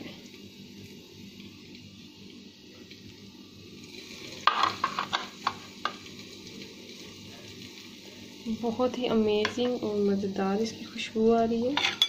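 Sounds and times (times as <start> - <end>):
faint steady hiss: 0.0 - 11.7.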